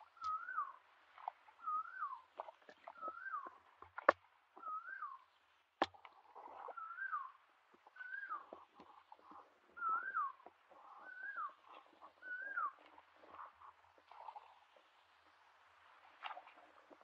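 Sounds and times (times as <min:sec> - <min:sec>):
bird whistled call: 0:00.0 - 0:00.8, 0:01.6 - 0:02.3, 0:02.9 - 0:03.6, 0:04.6 - 0:05.2, 0:06.7 - 0:07.4, 0:08.0 - 0:08.6, 0:09.8 - 0:12.8.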